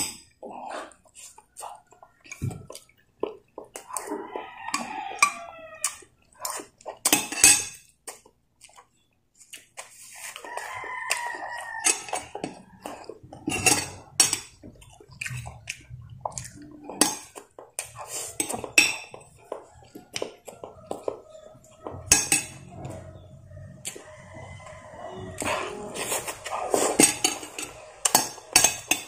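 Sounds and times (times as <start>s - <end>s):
chewing: 0.0s - 29.0s
spoon scraping glass bowl: 10.0s - 14.7s, 16.2s - 29.0s.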